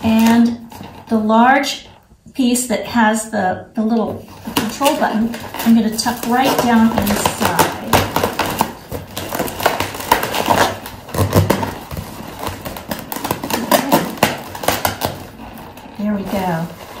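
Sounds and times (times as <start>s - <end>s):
balloons rubbing: 4.1s - 17.0s.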